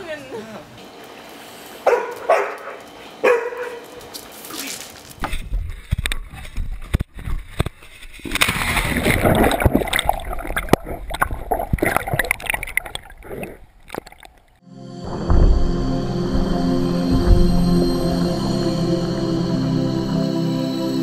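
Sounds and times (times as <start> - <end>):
water sloshing and gurgling: 5.8 - 14.6.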